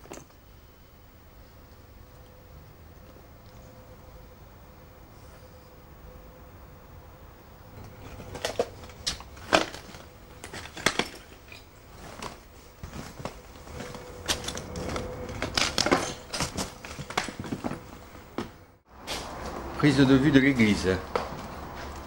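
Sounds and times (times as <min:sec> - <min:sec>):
footsteps crunching over debris: 0:08.2 - 0:19.6.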